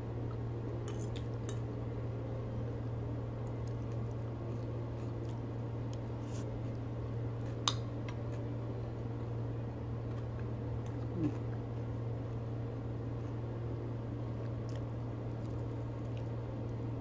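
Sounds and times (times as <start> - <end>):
low room hum: 0.0 - 17.0
quiet eating: 0.2 - 2.2, 2.8 - 17.0
person humming mm: 11.0 - 11.5.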